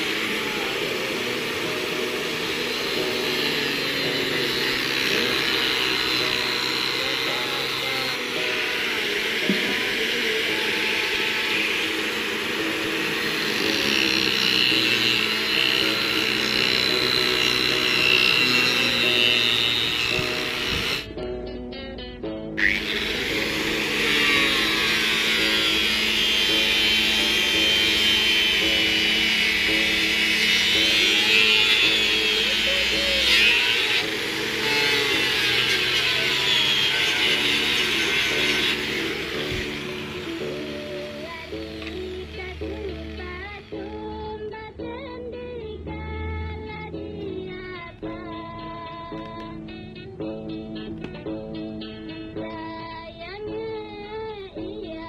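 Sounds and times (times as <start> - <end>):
angle grinder sanding wood: 0.0 - 21.2, 22.6 - 44.3.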